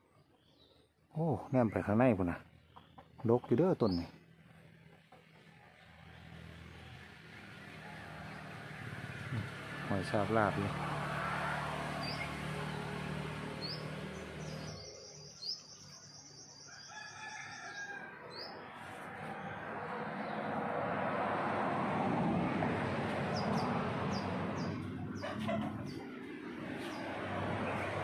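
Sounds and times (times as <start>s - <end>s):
high bird chirps: 13.6s - 17.1s
rooster crowing: 16.6s - 18.6s.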